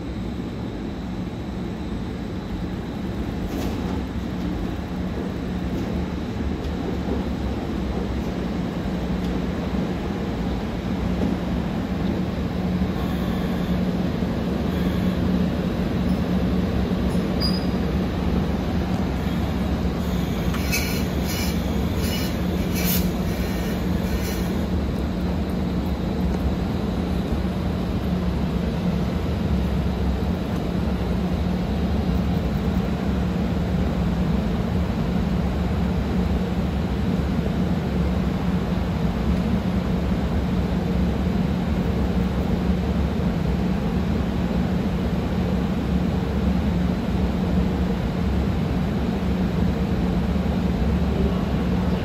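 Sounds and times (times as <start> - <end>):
electric train humming and rumbling: 0.0 - 52.0
wheels squealing and clicking: 17.1 - 17.8, 20.0 - 24.6.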